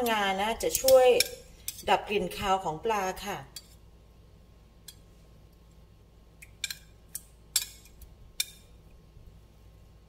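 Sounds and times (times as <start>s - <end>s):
metal tongs clicking on plate: 0.0s - 1.8s, 6.4s - 8.7s.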